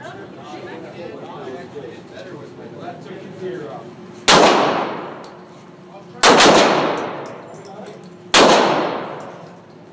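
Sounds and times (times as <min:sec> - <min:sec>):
gunshots echoing indoors: 0:04.3 - 0:05.2, 0:06.2 - 0:07.4, 0:08.3 - 0:09.4.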